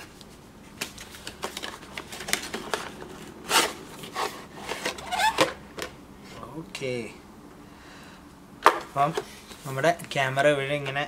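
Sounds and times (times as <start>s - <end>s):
cardboard packaging scraping: 0.9s - 6.4s.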